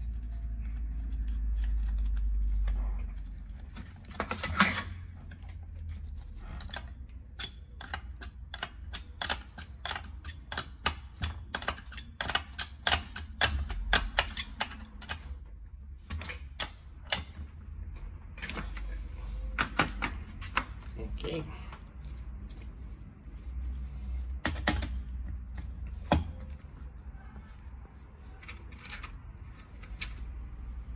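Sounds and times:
metal wrench clicking on nut: 0:06.7 - 0:15.4.

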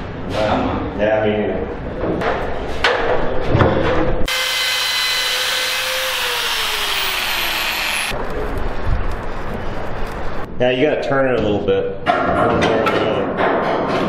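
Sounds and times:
cutting tool hiss and whine: 0:04.3 - 0:08.2.

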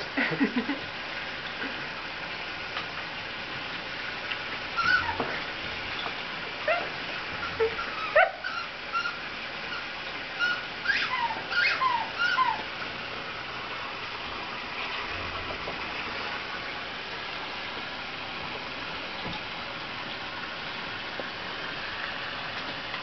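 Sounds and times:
steady hiss: 0:00.0 - 0:11.6.

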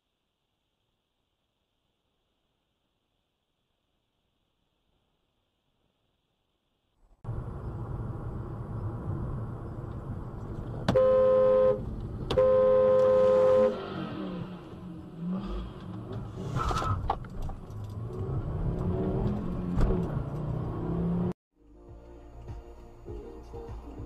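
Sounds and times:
car road and engine rumble: 0:07.0 - 0:21.4
car horn: 0:10.9 - 0:14.0.

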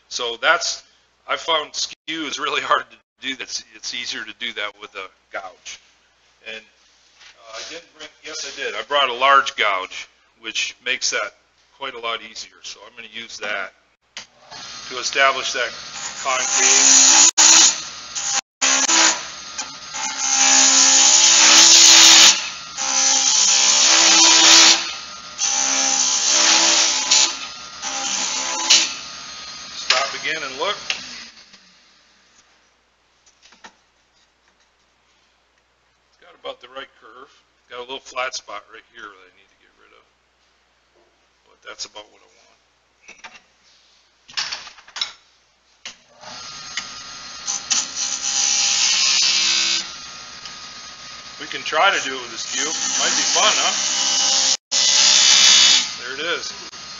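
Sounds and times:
turning tool cutting wood hiss: 0:15.6 - 0:32.0, 0:46.2 - 0:56.9
wood lathe humming: 0:46.2 - 0:56.9.

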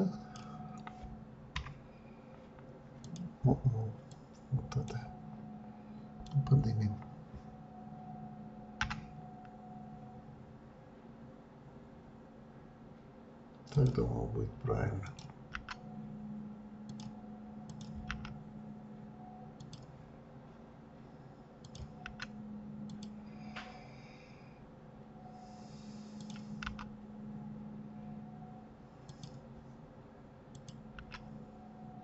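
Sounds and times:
low steady hum: 0:00.0 - 0:32.0
mouse and keyboard clicks: 0:26.2 - 0:26.9.

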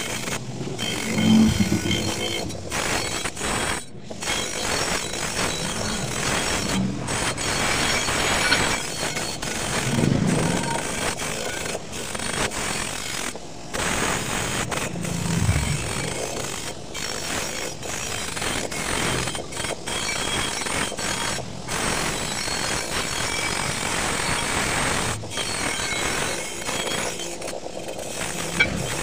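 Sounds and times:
wire wheel grinding metal pipe: 0:00.3 - 0:09.2, 0:14.6 - 0:17.2, 0:28.4 - 0:29.0.

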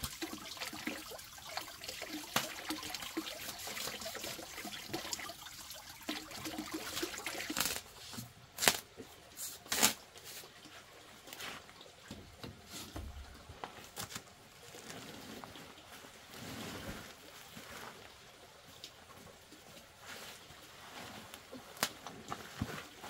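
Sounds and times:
knife slitting paper sack: 0:09.4 - 0:10.0.

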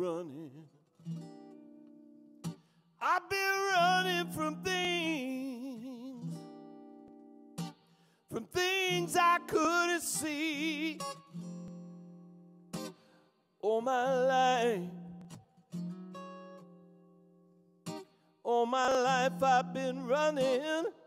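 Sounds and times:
man singing with vibrato: 0:00.0 - 0:00.8, 0:03.0 - 0:06.4, 0:08.3 - 0:11.2, 0:13.6 - 0:15.3, 0:18.5 - 0:21.0
acoustic guitar: 0:00.0 - 0:21.0.

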